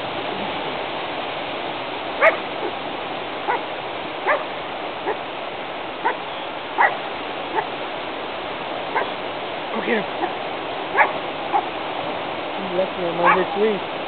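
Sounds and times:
steady hiss: 0:00.0 - 0:14.0
dog yipping: 0:02.2 - 0:02.4, 0:04.2 - 0:04.4, 0:06.0 - 0:06.2, 0:06.8 - 0:07.7, 0:09.0 - 0:09.2, 0:10.2 - 0:11.7.

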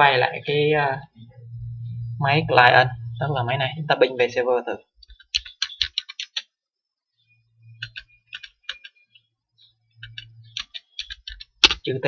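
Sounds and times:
faint low hum: 0:00.0 - 0:06.1, 0:06.9 - 0:12.0
keyboard key clicks: 0:05.0 - 0:06.5, 0:07.8 - 0:09.0, 0:10.0 - 0:11.9.

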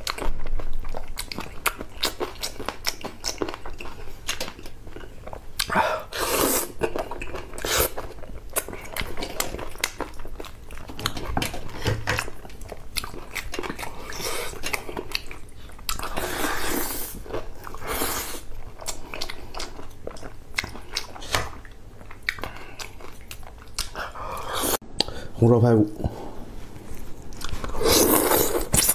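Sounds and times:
wet chewing and biting: 0:00.0 - 0:05.8, 0:06.6 - 0:25.1
slurping: 0:05.6 - 0:09.5, 0:15.9 - 0:18.5, 0:27.4 - 0:28.9.

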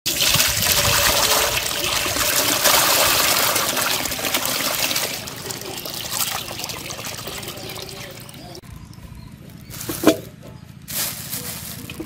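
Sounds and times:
water pouring and splashing into basin: 0:00.1 - 0:08.6.

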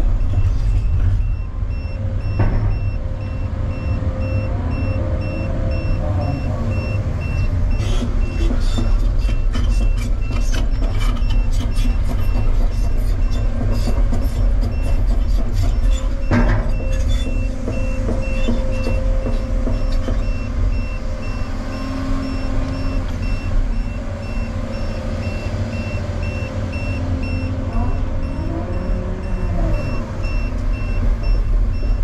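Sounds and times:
diesel engine under load: 0:00.0 - 0:32.0
travel alarm beeping: 0:00.0 - 0:32.0
clunk: 0:02.2 - 0:03.3, 0:13.6 - 0:20.8.

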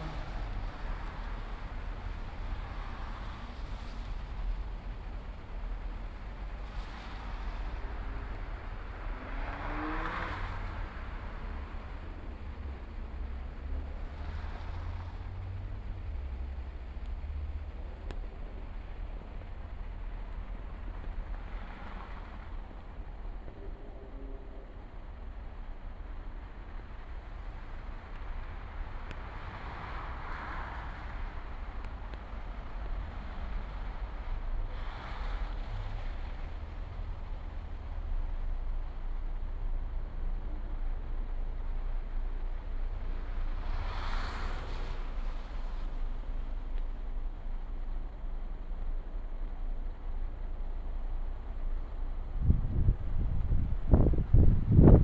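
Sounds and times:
low rumble and hiss: 0:00.0 - 0:55.0
steady rushing noise: 0:11.4 - 0:55.0
low rumble: 0:15.0 - 0:29.4, 0:44.5 - 0:55.0.

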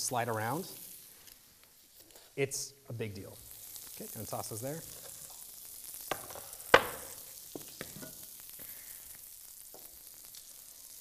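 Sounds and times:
kebabs sizzling on grill: 0:00.0 - 0:11.0
kitchenware knocks and clicks: 0:06.1 - 0:07.1.

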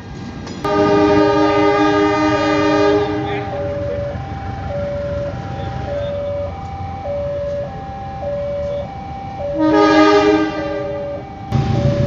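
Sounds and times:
diesel locomotive approaching: 0:00.0 - 0:12.0
locomotive horn: 0:00.7 - 0:07.7, 0:08.5 - 0:12.0
two-tone crossing alarm: 0:00.7 - 0:12.0.

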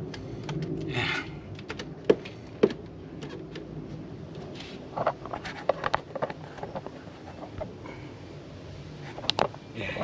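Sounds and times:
multimeter and leads clicking on plastic: 0:00.0 - 0:00.9.

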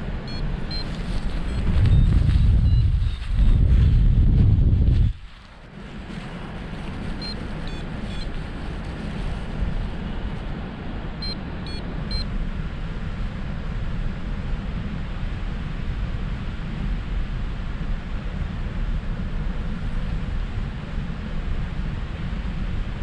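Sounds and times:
wind buffeting microphone: 0:00.0 - 0:23.0
short high electronic beeps: 0:00.3 - 0:02.9, 0:11.2 - 0:12.3.

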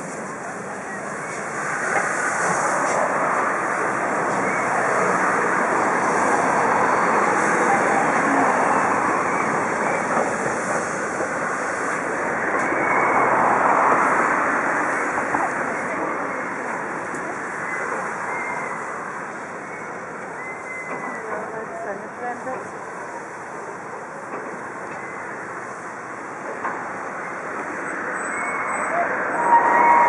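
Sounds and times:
steam locomotive hissing steam: 0:00.0 - 0:16.4.

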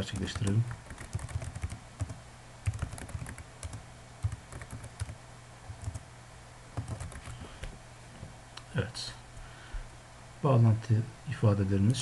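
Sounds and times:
computer keyboard typing: 0:00.0 - 0:06.0, 0:06.8 - 0:07.4
low steady hum: 0:00.0 - 0:12.0.

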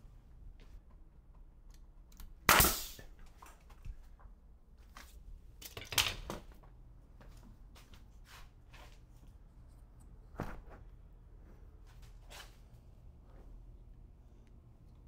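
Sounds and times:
nail gun firing: 0:02.5 - 0:03.0.

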